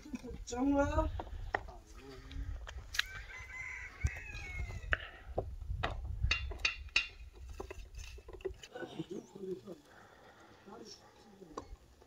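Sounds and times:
rooster crowing: 3.0 - 5.1
sharp knocks: 5.8 - 7.7.

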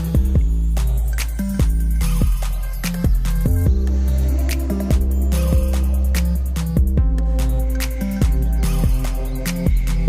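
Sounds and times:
deep bass with held notes: 0.0 - 10.0.

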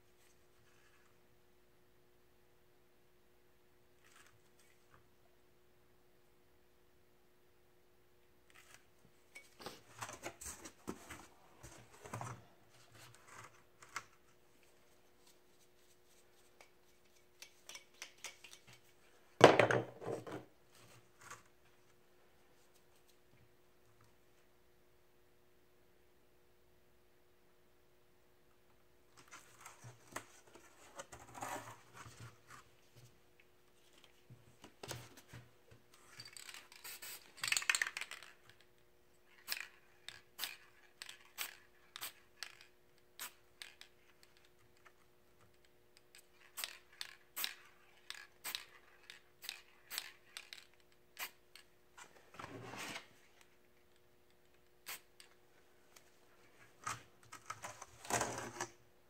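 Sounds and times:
spray paint can hissing: 36.8 - 37.3.

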